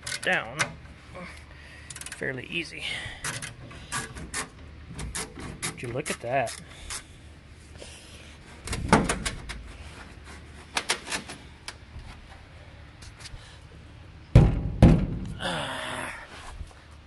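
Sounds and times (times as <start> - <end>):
knocks and clicks under truck: 3.2 - 7.0, 8.6 - 9.7, 14.3 - 15.4
loud thump: 14.3 - 15.4.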